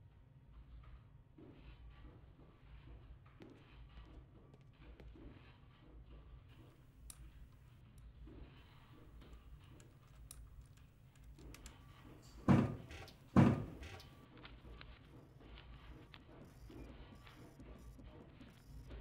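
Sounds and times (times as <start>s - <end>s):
faint handling clicks: 6.6s - 19.0s
heavy wooden thumps: 12.4s - 14.0s.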